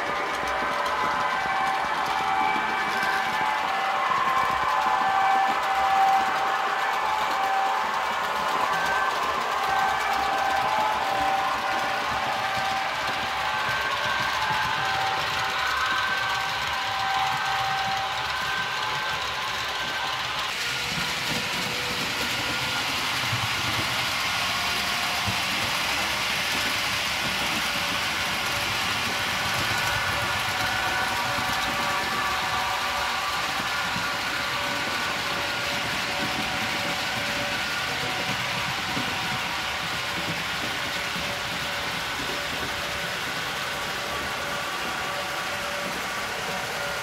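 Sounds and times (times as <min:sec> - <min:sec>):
metal wheels rolling on track: 0:00.0 - 0:47.0
model train motors whirring: 0:00.0 - 0:47.0.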